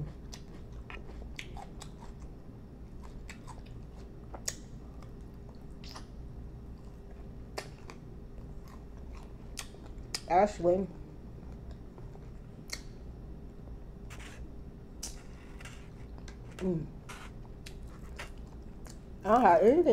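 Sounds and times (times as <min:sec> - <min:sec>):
chewing and crunching: 0:00.0 - 0:10.3, 0:15.0 - 0:19.9
steady low hum: 0:00.0 - 0:19.9.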